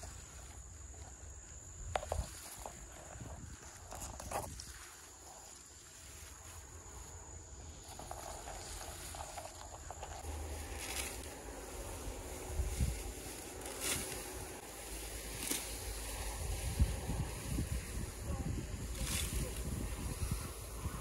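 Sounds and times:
low rumble: 10.1s - 21.0s.

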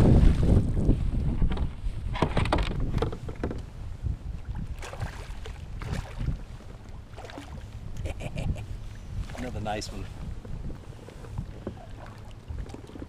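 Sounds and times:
wind on microphone: 0.0s - 13.0s
fish splashing in water: 4.7s - 6.3s.

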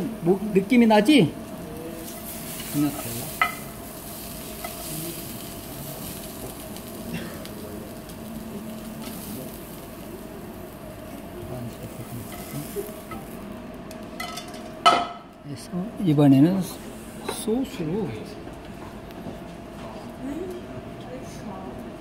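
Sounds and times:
oil sizzling in frying pan: 1.7s - 14.9s.

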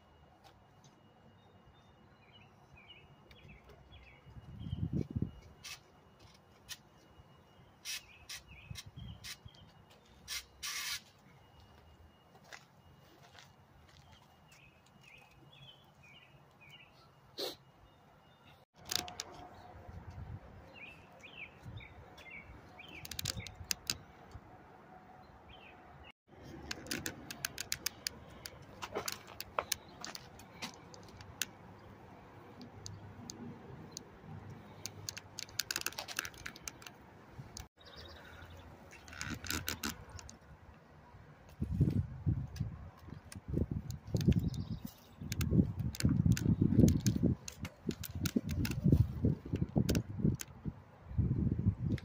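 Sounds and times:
light handling clicks and rattles: 26.4s - 31.6s, 32.6s - 37.7s, 42.5s - 50.6s.

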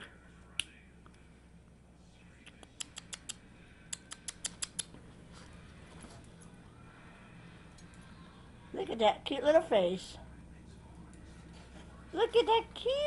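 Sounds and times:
puppy toenails clicking: 2.4s - 5.0s.

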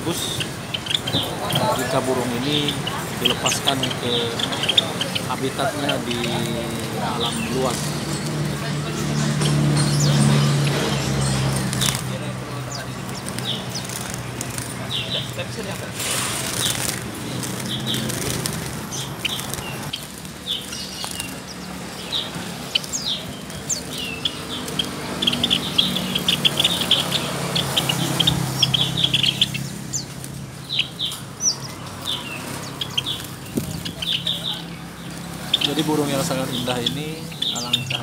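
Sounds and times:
sparrows chirping: 0.0s - 38.0s
birds fluttering wings: 0.1s - 38.0s.

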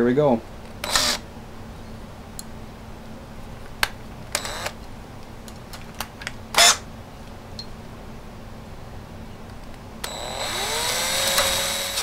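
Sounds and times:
drill clicks: 0.7s - 1.2s, 4.3s - 4.8s, 10.0s - 12.0s
cordless drill bursts: 0.8s - 1.2s, 4.4s - 4.8s, 6.6s - 6.8s, 10.0s - 12.0s.

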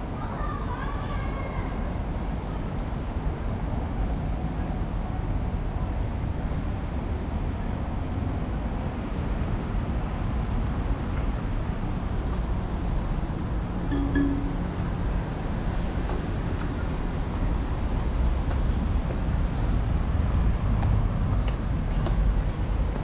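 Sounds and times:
road traffic rumble: 0.0s - 23.0s
short low tone: 13.9s - 15.0s.

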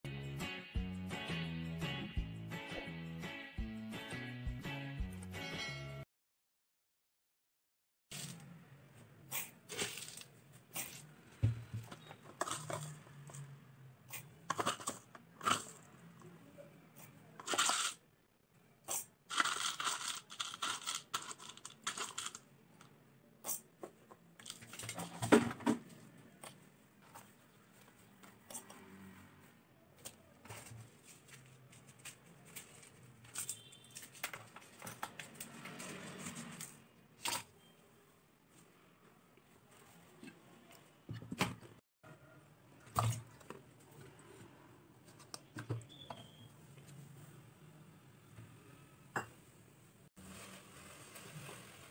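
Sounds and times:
seeds rattling on steel: 17.4s - 18.0s, 19.3s - 22.4s
seeds pouring into a jar: 19.3s - 22.4s.

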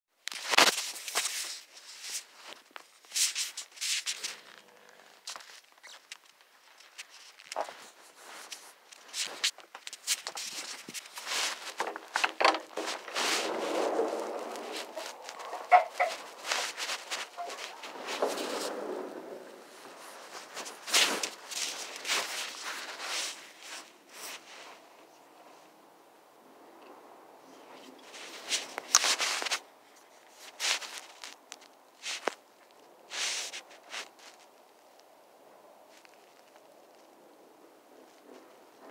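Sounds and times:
phone rustling against fabric: 0.3s - 24.8s, 28.0s - 32.4s, 33.1s - 34.6s.

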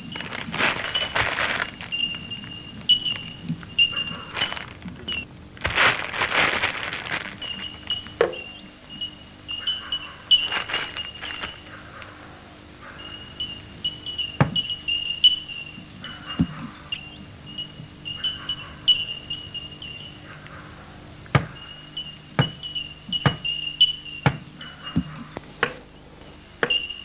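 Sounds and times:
high bird chirps: 0.0s - 5.3s, 7.2s - 11.8s, 12.9s - 20.2s, 21.5s - 25.1s, 26.6s - 27.0s.

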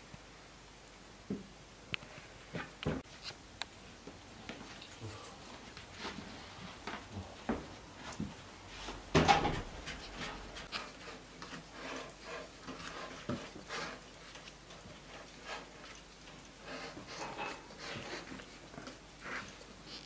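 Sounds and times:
hands rolling dough: 4.0s - 20.0s
knock and scrape: 7.5s - 14.0s, 16.7s - 18.4s.

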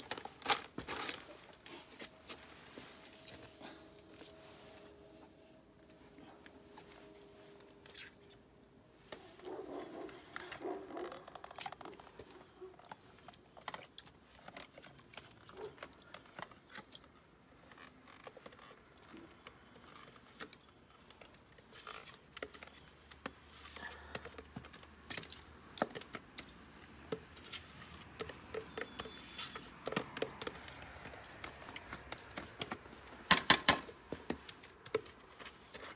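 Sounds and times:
spoon knocking aluminium pots: 33.3s - 33.9s.

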